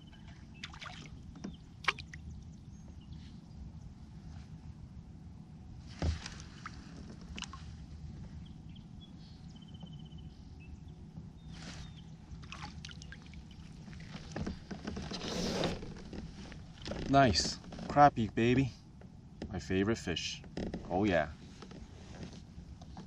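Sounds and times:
water lapping and splashing: 0:00.1 - 0:02.3, 0:12.3 - 0:15.0.

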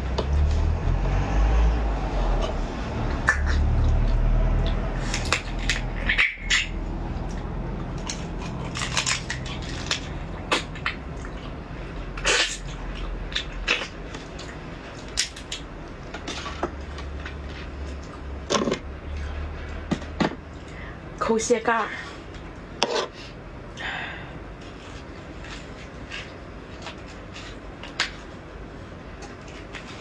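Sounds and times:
crab shell cracking: 0:08.0 - 0:11.0.

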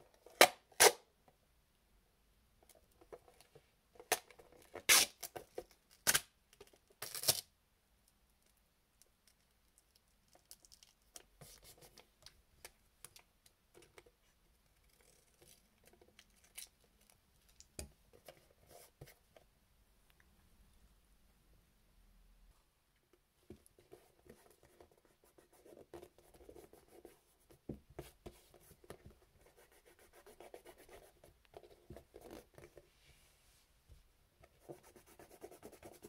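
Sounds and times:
tape rubbing and crinkling: 0:04.7 - 0:05.3.

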